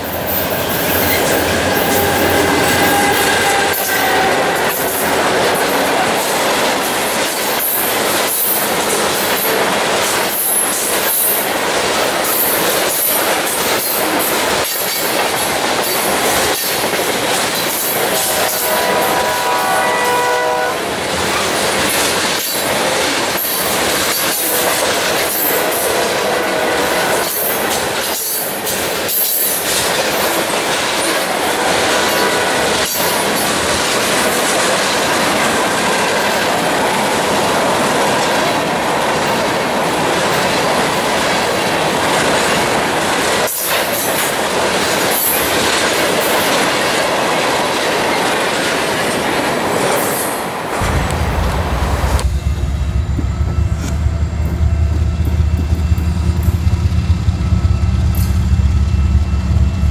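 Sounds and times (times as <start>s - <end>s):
diesel locomotive engine rumble: 0.0s - 7.1s, 50.7s - 59.9s
train wheels rolling on rail: 0.0s - 59.9s.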